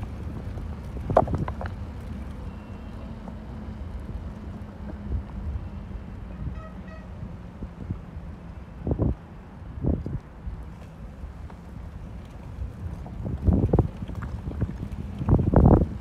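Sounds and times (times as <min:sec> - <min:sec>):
wind on microphone: 0:00.0 - 0:03.1, 0:08.7 - 0:10.4, 0:11.2 - 0:16.0
bicycle rolling over paving tiles: 0:00.0 - 0:06.2, 0:10.7 - 0:16.0.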